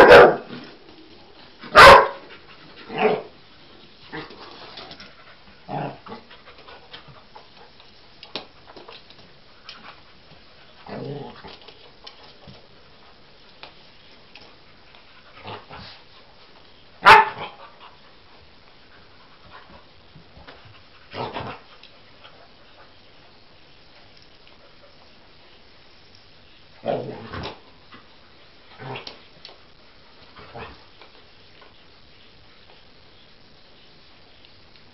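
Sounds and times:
small dog barking: 0:00.0 - 0:00.5, 0:01.7 - 0:02.2, 0:17.0 - 0:17.5.

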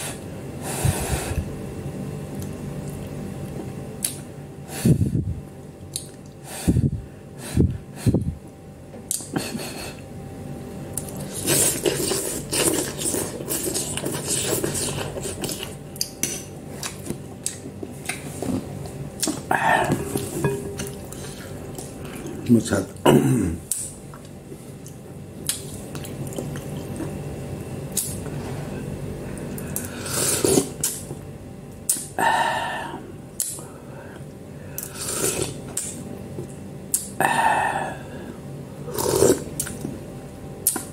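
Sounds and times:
person slurping and chewing noodles: 0:11.0 - 0:22.4, 0:29.5 - 0:31.0, 0:34.8 - 0:36.0, 0:38.8 - 0:39.9
slurping noodles: 0:11.1 - 0:15.8, 0:29.8 - 0:31.0, 0:34.8 - 0:35.6, 0:38.9 - 0:39.8.

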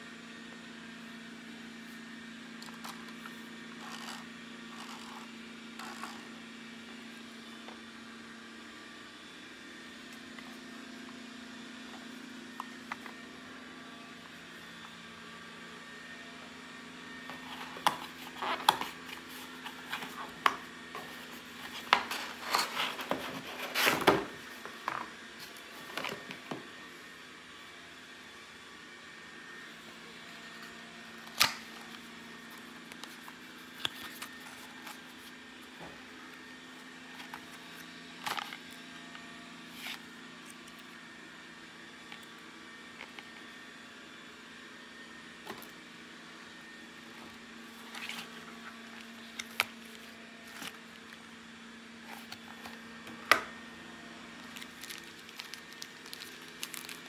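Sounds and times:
cardboard packaging rustling: 0:17.3 - 0:24.8, 0:54.4 - 0:57.0.

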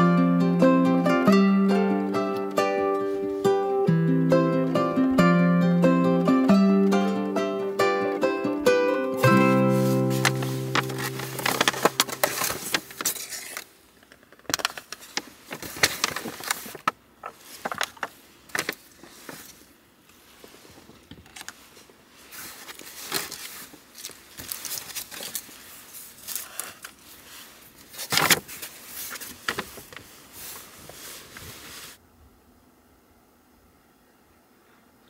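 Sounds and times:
paper bag and plastic containers crinkling: 0:09.2 - 0:19.7, 0:20.4 - 0:32.0.

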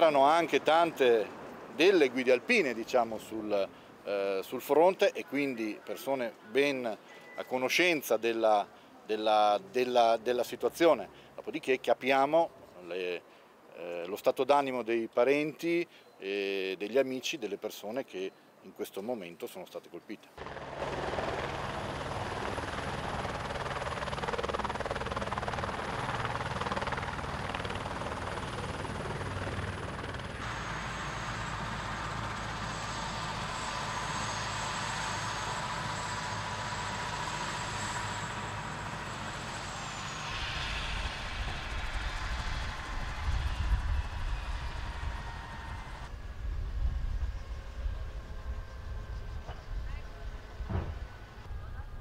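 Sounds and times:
helicopter rotor noise: 0:20.4 - 0:52.0
turbine whine: 0:20.4 - 0:52.0.

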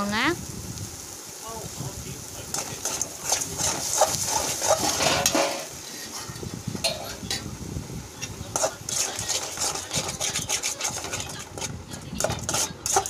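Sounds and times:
spatula scraping paste in metal pan: 0:02.5 - 0:07.4, 0:08.2 - 0:13.0
metal clinking on metal: 0:06.8 - 0:07.4.

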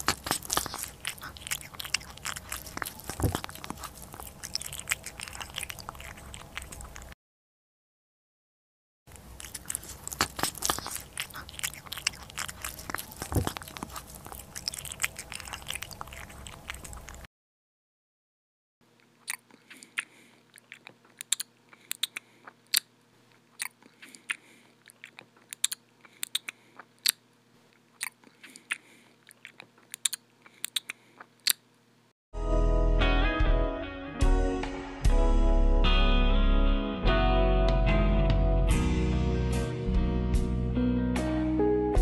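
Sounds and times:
crunchy food being chewed: 0:00.0 - 0:07.2, 0:09.1 - 0:17.3, 0:18.9 - 0:31.8.

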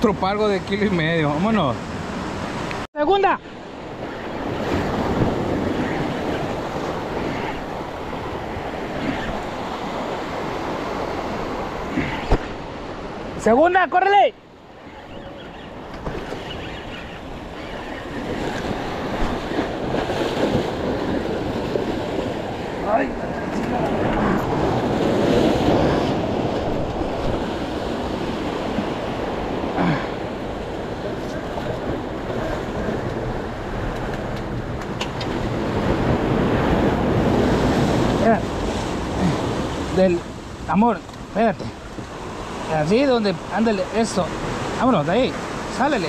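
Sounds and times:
wind on microphone: 0:03.7 - 0:13.3, 0:14.8 - 0:40.6
surf breaking on rocks: 0:18.1 - 0:40.9.

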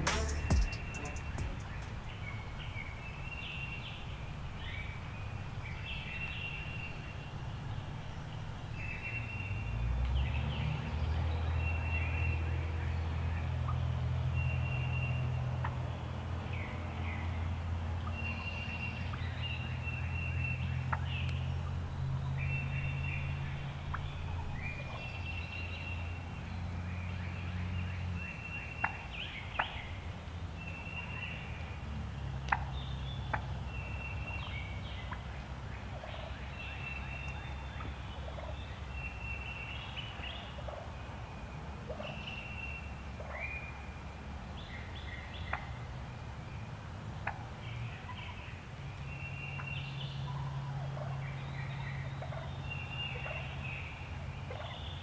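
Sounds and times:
short high bird notes: 0:00.0 - 0:02.3
wild turkeys calling: 0:00.0 - 0:09.6, 0:16.7 - 0:31.8, 0:32.4 - 0:45.9, 0:49.5 - 0:55.0.

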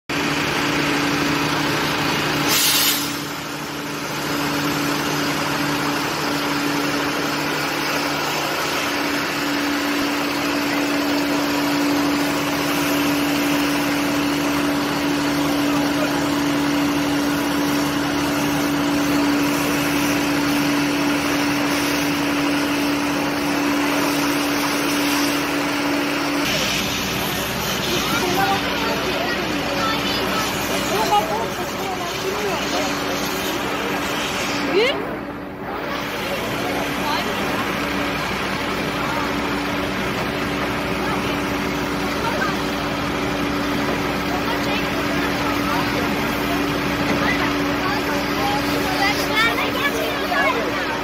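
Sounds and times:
truck engine humming: 0:00.1 - 0:51.0
wide hiss: 0:02.0 - 0:10.8, 0:26.4 - 0:31.1.

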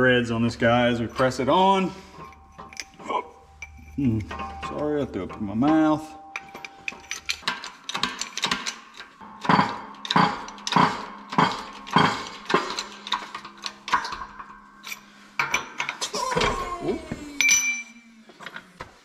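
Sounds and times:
metal parts clinking: 0:00.6 - 0:16.6, 0:17.4 - 0:18.8.

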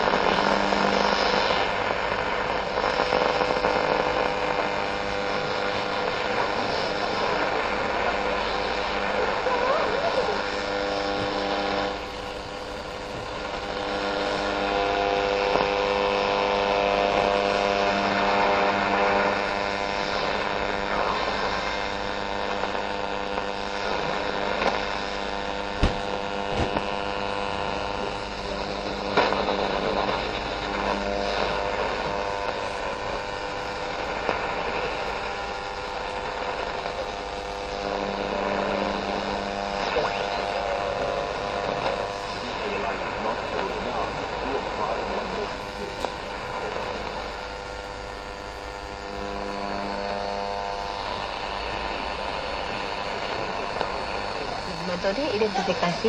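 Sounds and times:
faint radio stations: 0:00.0 - 0:56.0
hum: 0:00.0 - 0:56.0
radio static: 0:00.0 - 0:56.0
sharp crackles: 0:00.0 - 0:56.0.

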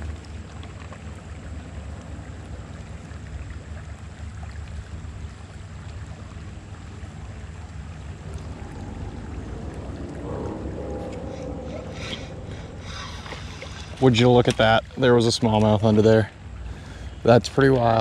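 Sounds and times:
hiss of river water: 0:00.0 - 0:15.4, 0:16.1 - 0:17.9
wind buffeting microphone: 0:06.9 - 0:16.6.

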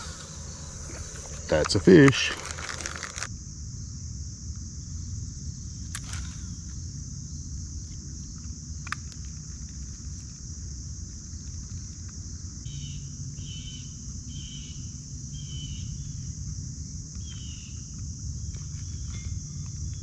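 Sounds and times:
bird calling: 0:00.0 - 0:03.3
low rumble: 0:00.0 - 0:03.3
high insect drone: 0:00.0 - 0:20.0
sharp click: 0:05.9 - 0:06.5.

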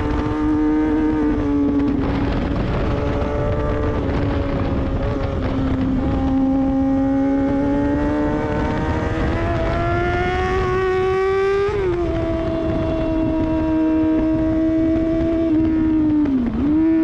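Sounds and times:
motorcycle engine revving: 0:00.0 - 0:17.0
wind noise on microphone: 0:00.0 - 0:17.0.

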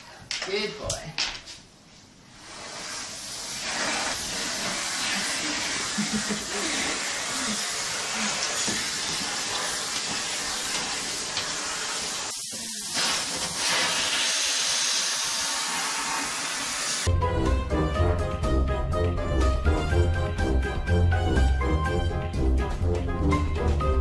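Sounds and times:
vacuum cleaner running: 0:03.6 - 0:17.1
music: 0:17.1 - 0:24.0.

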